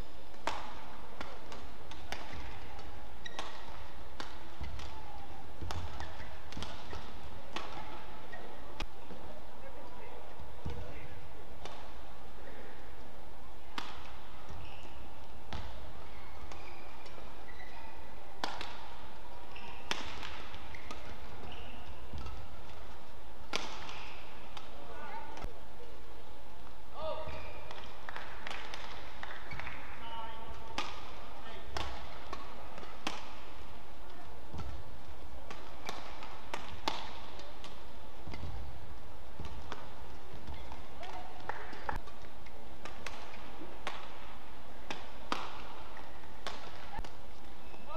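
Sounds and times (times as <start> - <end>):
rackets striking shuttlecock: 0.3 - 8.9, 10.6 - 12.6, 13.6 - 25.5, 27.2 - 38.7, 39.3 - 47.9
shoes squeaking on court: 1.3 - 5.0, 5.6 - 8.8, 14.0 - 24.6, 39.4 - 44.0.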